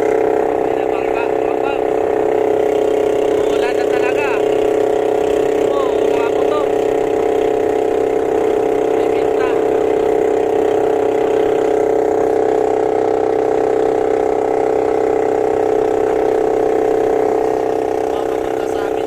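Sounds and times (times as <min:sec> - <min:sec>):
small boat engine running: 0:00.0 - 0:19.0.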